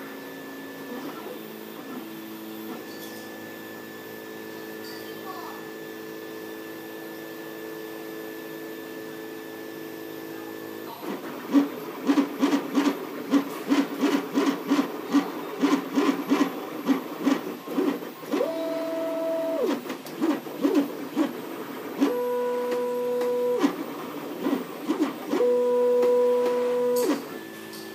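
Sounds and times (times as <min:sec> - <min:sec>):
printer stepper motors humming: 0:00.0 - 0:27.9
motor whining tones gliding in pitch: 0:17.6 - 0:19.8.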